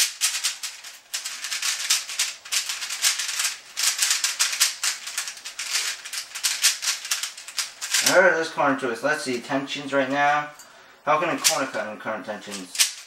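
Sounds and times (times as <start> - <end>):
puzzle cube clacking: 0.0 - 8.2, 11.4 - 11.6, 12.5 - 13.0.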